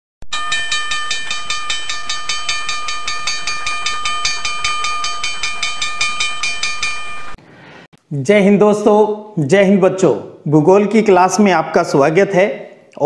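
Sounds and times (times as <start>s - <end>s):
held high tones: 0.3s - 7.4s.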